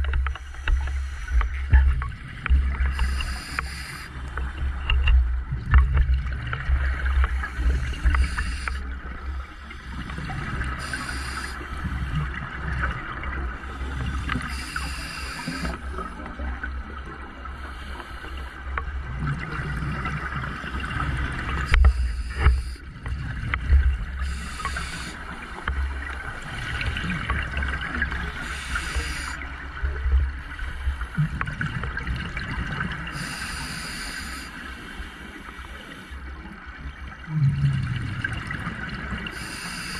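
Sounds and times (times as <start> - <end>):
diver breathing on a regulator: 0.0 - 1.7, 2.8 - 4.8, 7.2 - 12.4, 13.6 - 16.2, 17.5 - 18.8, 21.6 - 23.3, 24.0 - 26.0, 28.2 - 29.6, 33.1 - 36.4, 39.3 - 39.9
exhaled bubbles hissing: 0.0 - 4.7, 6.1 - 16.8, 17.5 - 29.8, 30.4 - 36.5, 37.2 - 39.9
low rumble and crackle of water: 0.0 - 39.9.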